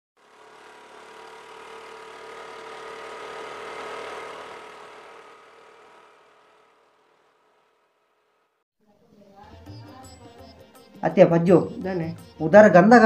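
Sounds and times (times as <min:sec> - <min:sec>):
motor scooter engines humming: 0:00.2 - 0:07.9.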